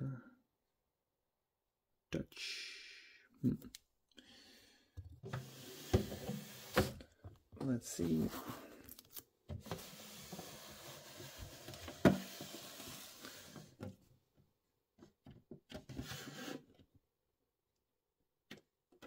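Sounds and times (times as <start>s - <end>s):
plastic rubbing and sliding: 5.2s - 7.1s, 9.5s - 14.0s, 15.8s - 16.8s
short scrape: 16.0s - 16.6s.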